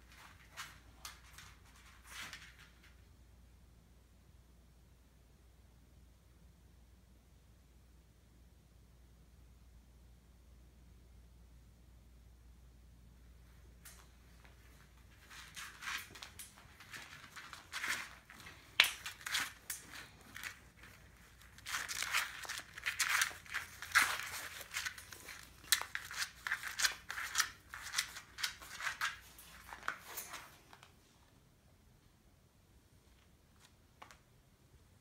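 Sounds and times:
claws scratching on wire and tile: 15.4 - 30.4.

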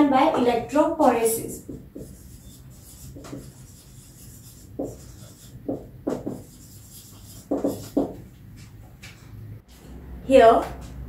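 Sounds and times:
marker rubbing on whiteboard: 1.0 - 9.2.

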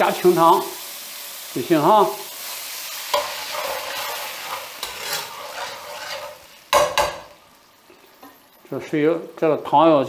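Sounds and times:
hot pan sizzling: 0.0 - 10.0
ladle stirring in wok: 3.0 - 7.4.

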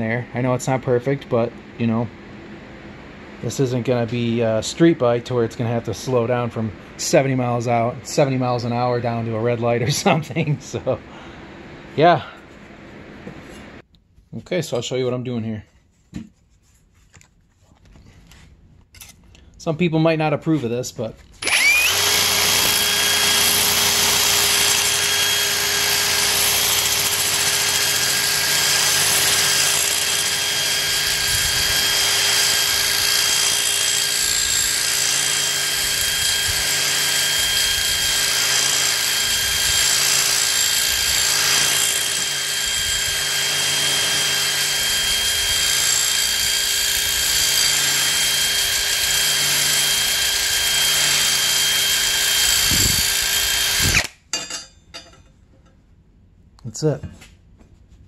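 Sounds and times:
drill grinding metal with whine: 21.4 - 54.2.

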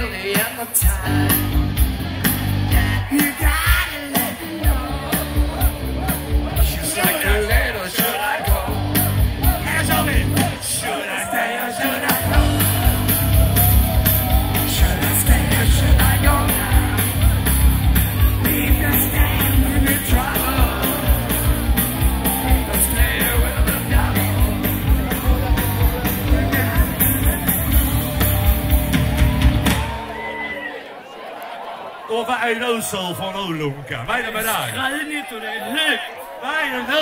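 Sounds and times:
live rock band music: 0.0 - 10.9, 11.7 - 30.4.

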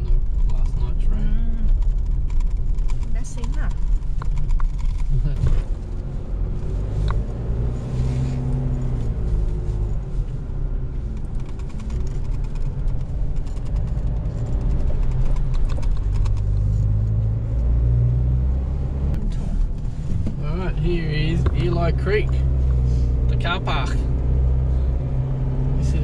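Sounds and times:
light rattles: 0.0 - 17.0
low engine drone: 0.0 - 26.0.

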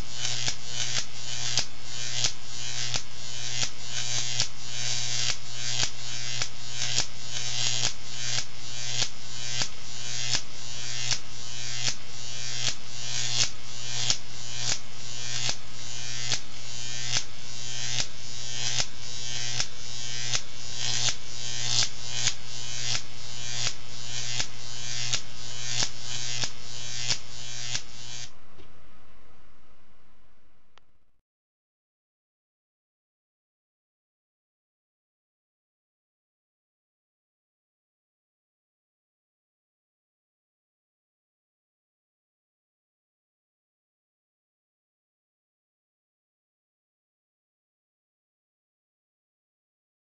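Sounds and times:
electric arc snapping: 0.0 - 28.4
electric arc buzzing: 0.0 - 28.5.

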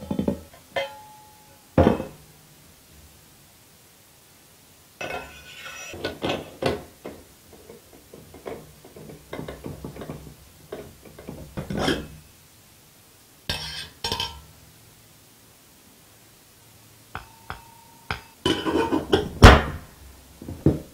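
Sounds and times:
metal lid scraping off kettle: 5.0 - 6.5, 11.2 - 12.1, 18.5 - 19.2.

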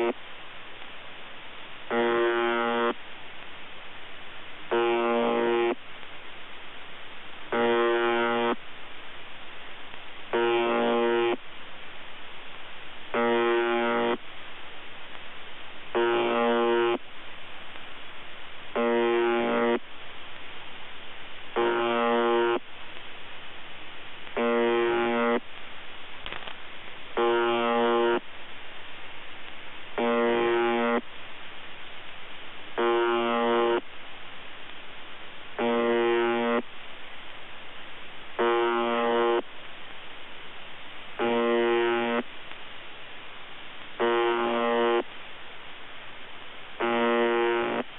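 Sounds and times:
radio hiss: 0.0 - 47.9
harsh buzzy radio tone: 1.9 - 3.0, 4.7 - 5.8, 7.5 - 8.6, 10.3 - 11.4, 13.1 - 14.2, 15.9 - 17.0, 18.8 - 19.8, 21.6 - 22.6, 24.4 - 25.4, 27.2 - 28.3, 30.0 - 31.1, 32.8 - 33.9, 35.6 - 36.7, 38.4 - 39.5, 41.2 - 42.3, 44.0 - 45.1, 46.8 - 47.9.

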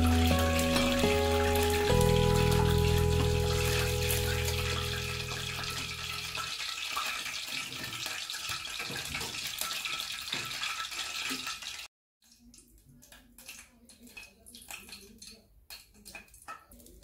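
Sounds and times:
background music tones: 0.0 - 6.6.

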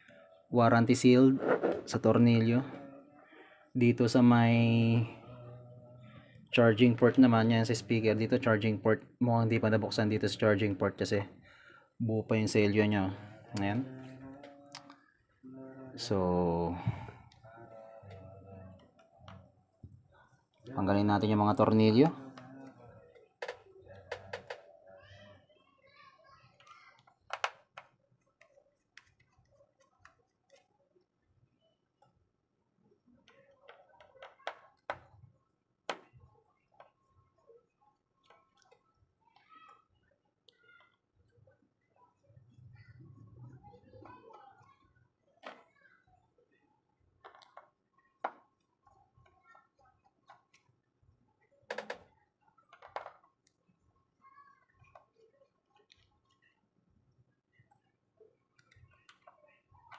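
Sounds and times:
small tools clicking on phone: 22.4 - 24.6, 26.6 - 30.6.

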